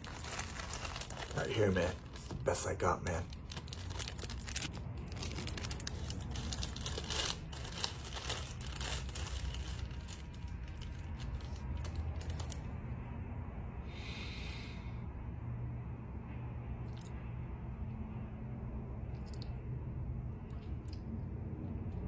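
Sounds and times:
plastic bag crinkling: 0.0s - 12.7s
person sniffing: 13.9s - 14.9s.

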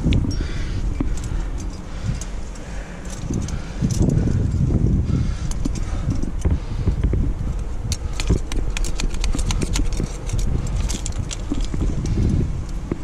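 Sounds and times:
carabiners clinking and jangling: 0.0s - 4.7s, 5.4s - 6.4s, 7.9s - 12.4s
low rumble on microphone: 0.0s - 13.0s.

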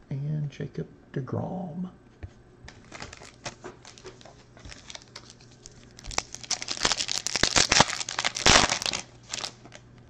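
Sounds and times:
foil wrapper crinkling: 2.7s - 9.8s
foil wrapper ripping: 2.8s - 9.8s.

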